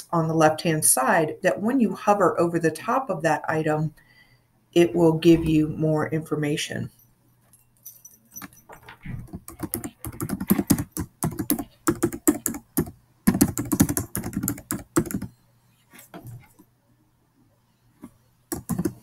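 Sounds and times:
typing on computer keyboard: 9.2 - 15.3, 18.5 - 19.0.

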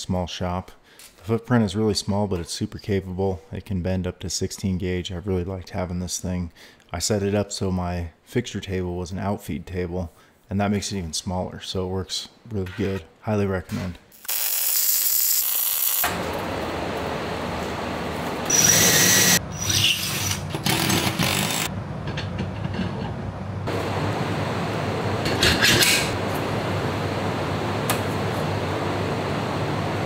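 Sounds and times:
welding arc hissing: 14.1 - 16.1, 18.5 - 20.3
power tool and machine noise: 14.3 - 21.7.

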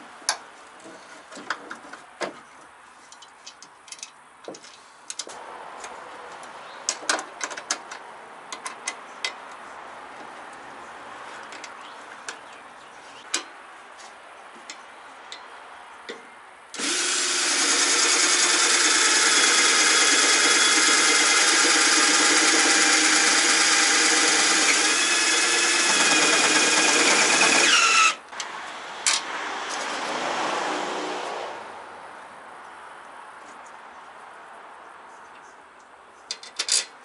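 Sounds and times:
cordless drill running: 16.8 - 28.2.

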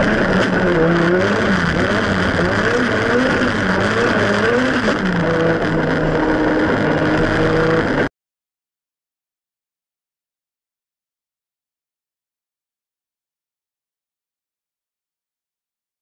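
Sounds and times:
car engine revving: 0.0 - 8.1.

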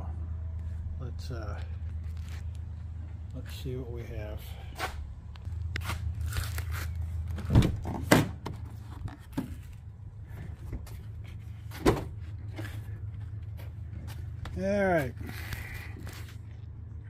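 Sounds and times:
steady low hum: 0.0 - 17.0
van door clunking open: 7.3 - 8.6, 11.7 - 12.7.

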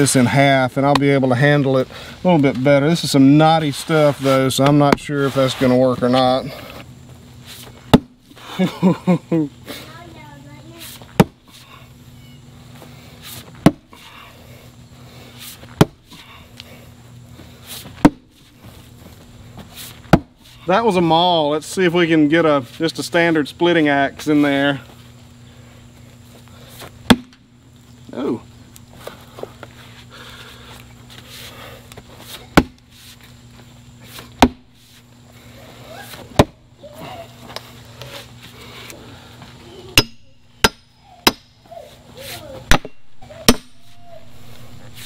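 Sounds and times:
axe chopping wood: 7.9 - 8.2, 11.1 - 11.5, 13.6 - 14.0, 15.7 - 16.2, 18.0 - 18.3, 20.0 - 20.4, 27.0 - 27.4, 32.5 - 32.8, 34.4 - 34.7, 36.3 - 36.6, 40.0 - 41.5, 42.7 - 44.1
splitting maul striking wood: 11.2 - 11.4, 27.1 - 27.4, 32.6 - 32.8, 34.4 - 34.7, 40.0 - 41.5, 42.7 - 43.9.

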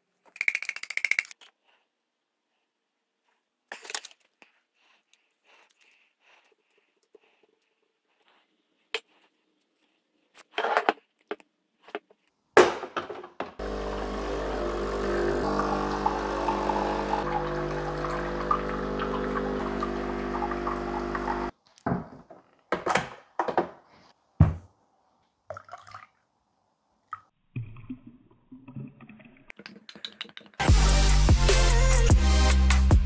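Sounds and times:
espresso machine pump humming: 13.6 - 21.5
water streaming into cup: 13.6 - 21.5, 25.5 - 26.2.

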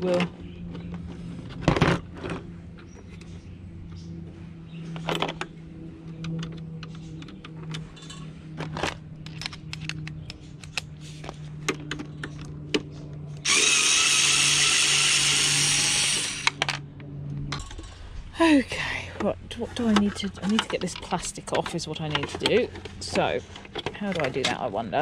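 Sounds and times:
tools clicking and knocking: 6.1 - 10.9, 11.6 - 12.9, 19.9 - 24.6
cordless screwdriver motor running: 13.4 - 16.6.

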